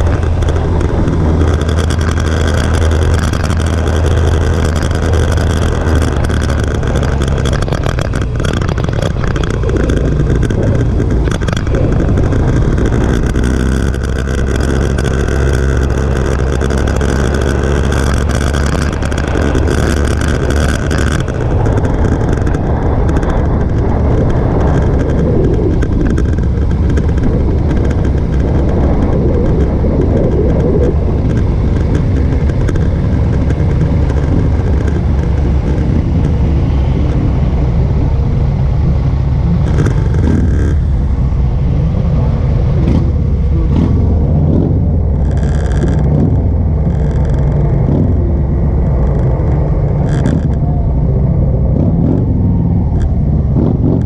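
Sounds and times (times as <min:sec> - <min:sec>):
motorcycle engine running: 0:00.0 - 0:54.0
wind rushing: 0:17.0 - 0:45.3.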